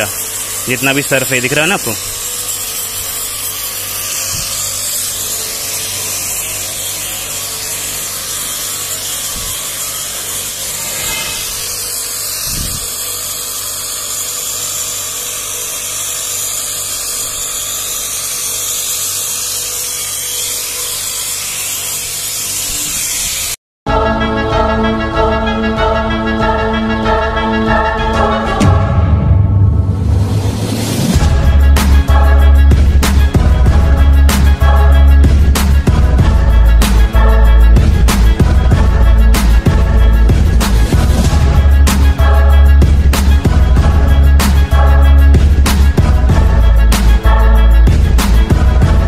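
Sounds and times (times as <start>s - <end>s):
music: 0.0s - 18.2s, 23.9s - 49.0s
faint motor hum: 0.0s - 22.4s
pressure washer water jet hissing: 0.0s - 23.6s, 31.0s - 49.0s.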